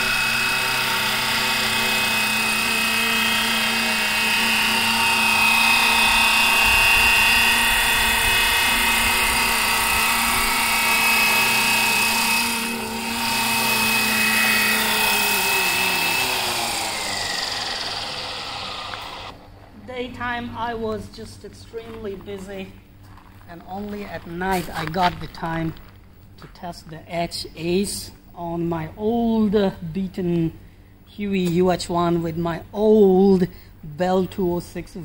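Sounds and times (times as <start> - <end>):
rc helicopter motor whine: 0.0 - 19.6.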